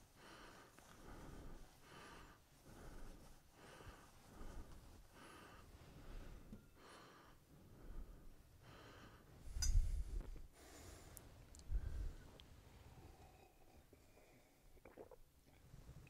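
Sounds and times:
soft rustling and handling: 0:00.0 - 0:06.6.

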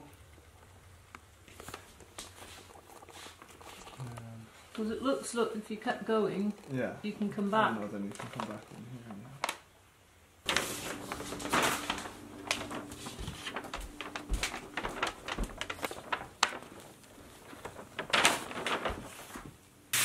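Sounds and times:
paper rustling: 0:07.7 - 0:09.6, 0:10.4 - 0:19.6.

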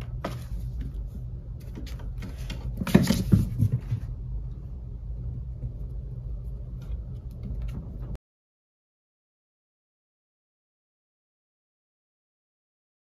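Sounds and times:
steady low hum: 0:00.0 - 0:08.2.

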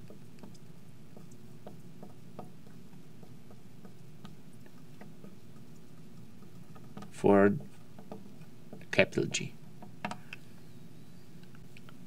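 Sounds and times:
low room hum: 0:00.0 - 0:12.0
marker tapping on glass: 0:01.2 - 0:09.0.

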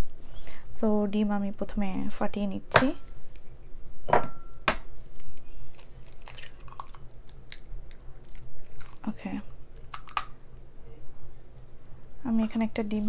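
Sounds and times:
egg shell crackling: 0:05.1 - 0:10.4.

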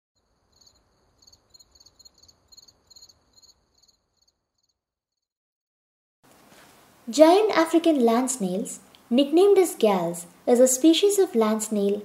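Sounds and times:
crickets chirping faintly: 0:00.2 - 0:04.8.

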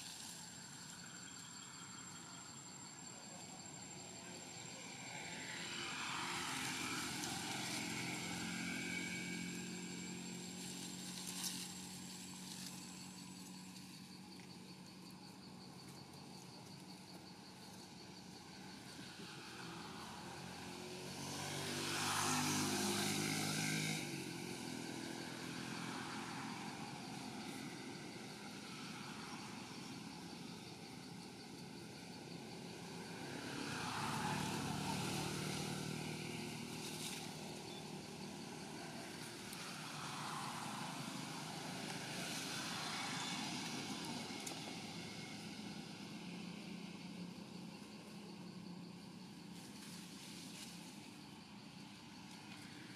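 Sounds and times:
distant engine hum passing: 0:00.2 - 0:13.5, 0:18.1 - 0:51.0.

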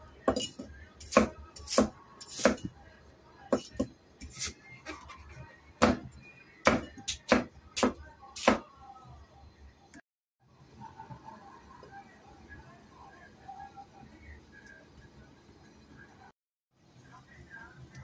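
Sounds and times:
cleaver chopping on cutting board: 0:05.8 - 0:06.0, 0:06.6 - 0:08.6.

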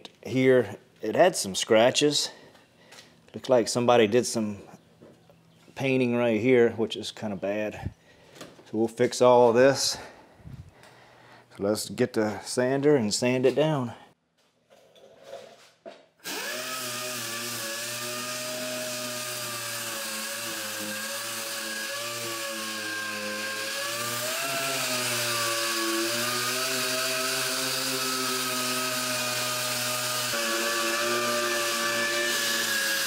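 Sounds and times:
pneumatic sander whining: 0:16.2 - 0:33.0.

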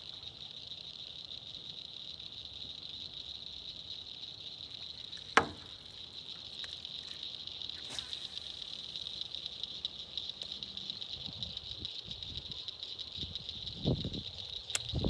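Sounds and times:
chorus of insects: 0:00.0 - 0:15.0
sharp knock: 0:05.4 - 0:05.7.

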